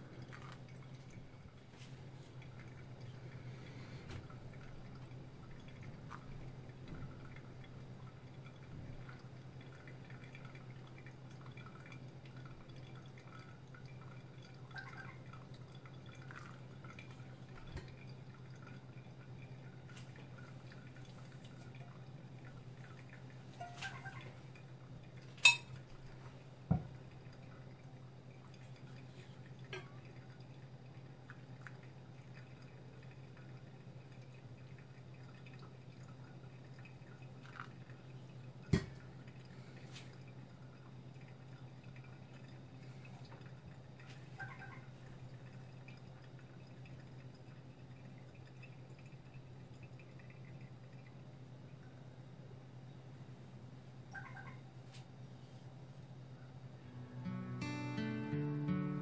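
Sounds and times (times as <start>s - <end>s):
coffee dripping: 0.0s - 56.9s
steady low hum: 0.0s - 59.0s
sharp clink: 25.4s - 25.7s.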